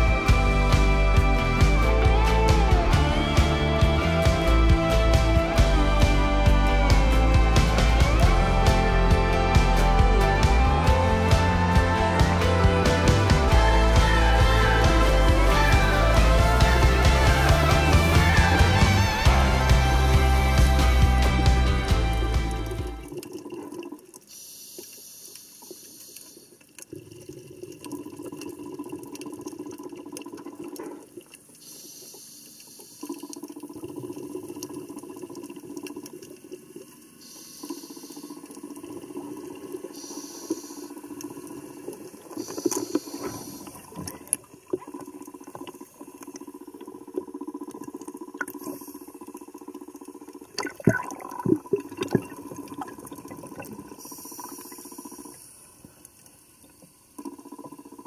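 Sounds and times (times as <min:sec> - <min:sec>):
bubbling hiss: 0:31.5 - 0:58.0
muffled underwater noise: 0:37.2 - 0:55.6.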